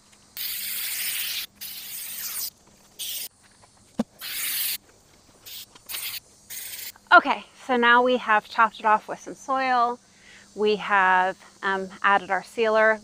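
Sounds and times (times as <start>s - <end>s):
spray can hissing: 0.4s - 3.3s, 4.2s - 4.8s, 5.4s - 7.0s.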